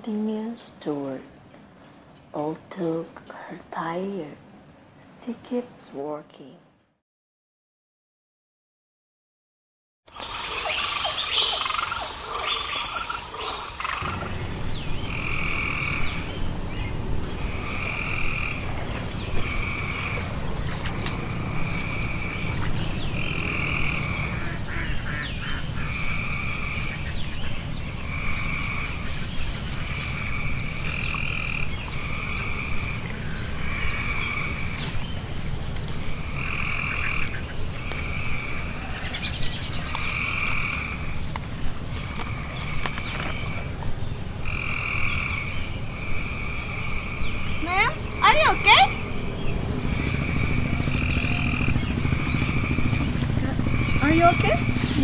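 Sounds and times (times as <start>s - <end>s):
frogs croaking: 10.1s - 54.9s
low rumble: 14.0s - 39.1s, 48.9s - 55.0s.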